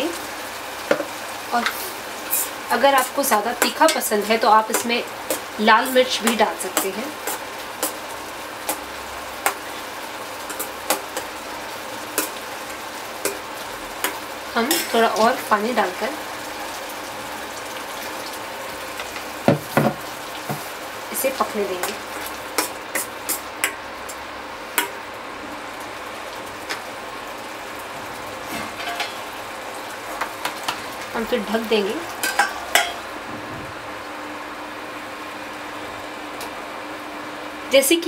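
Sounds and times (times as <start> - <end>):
gravy sizzling: 0.0 - 38.0
metal spoon knocking on pan: 19.5 - 20.6, 23.6 - 23.8, 24.8 - 25.0.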